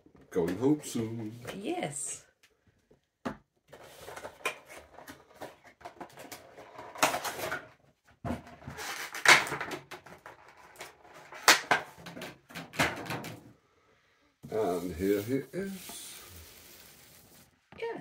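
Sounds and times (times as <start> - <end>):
cardboard and plastic packaging rustling: 14.4 - 17.5.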